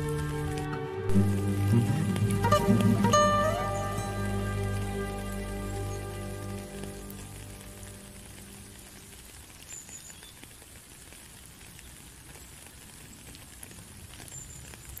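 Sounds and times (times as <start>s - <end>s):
acoustic guitar: 0.0s - 8.7s
rain on a puddle: 0.0s - 15.0s.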